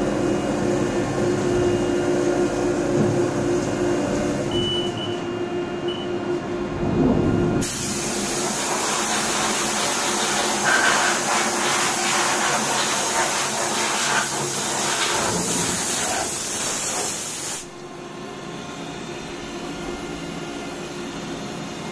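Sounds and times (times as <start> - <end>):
machine hum: 0.0 - 11.4
air blow gun hissing: 7.6 - 17.7.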